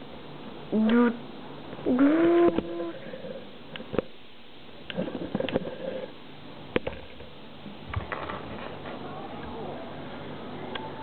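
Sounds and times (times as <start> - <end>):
faint murmur: 8.6 - 11.0.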